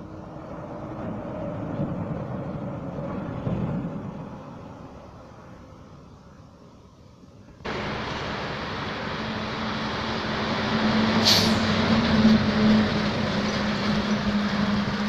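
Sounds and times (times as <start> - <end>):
road and tyre noise: 0.0 - 15.0
truck engine driving past: 7.7 - 15.0
short hiss: 11.2 - 11.7.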